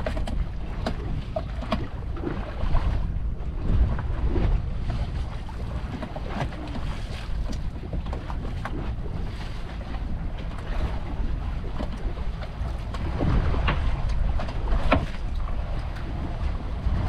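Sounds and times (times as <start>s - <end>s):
waves slapping against boat: 0.0s - 17.0s
wind buffeting microphone: 0.0s - 17.0s.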